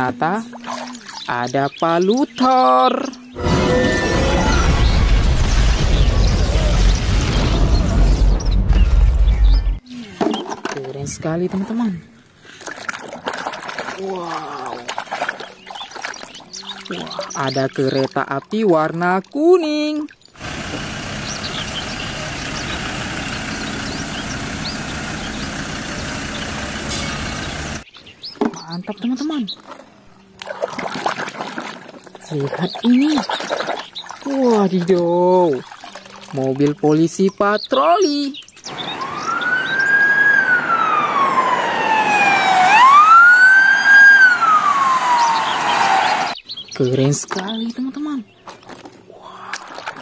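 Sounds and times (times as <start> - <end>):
birds chirping: 0.0 - 12.2, 14.0 - 50.0
road train engine running: 20.4 - 27.8
police siren wailing: 38.7 - 46.4.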